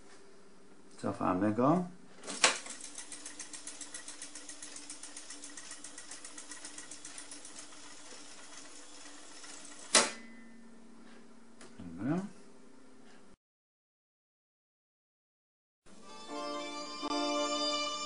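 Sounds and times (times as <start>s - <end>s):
fast ticking of spinning reels: 2.6s - 10.0s.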